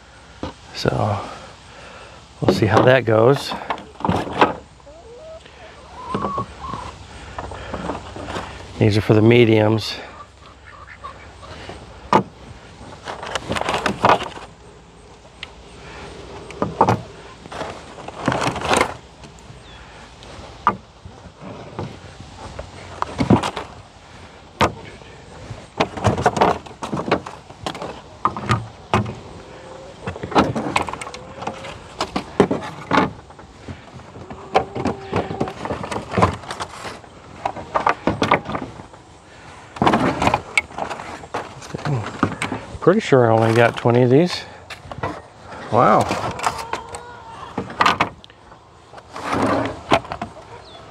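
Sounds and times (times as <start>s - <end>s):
plastic frames clacking: 12.1s - 14.6s, 30.0s - 38.8s.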